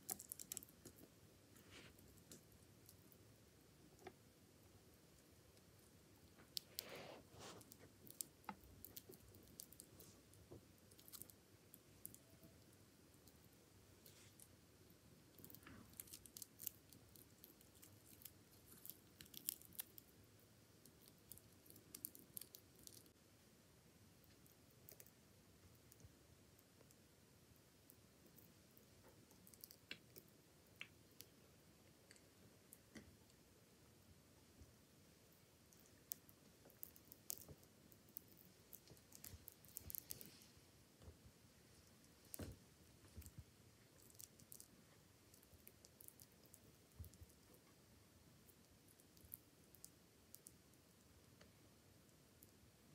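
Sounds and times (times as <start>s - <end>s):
scorpion chewing with crackling clicks: 0.0s - 3.2s, 15.3s - 20.2s, 20.8s - 23.2s, 27.8s - 31.3s, 35.7s - 40.4s, 43.0s - 47.7s.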